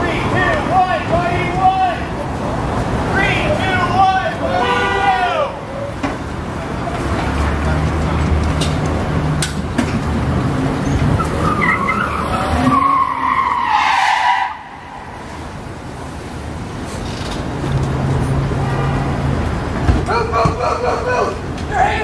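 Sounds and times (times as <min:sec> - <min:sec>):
car tyres squealing in a skid: 0:10.8 - 0:15.1.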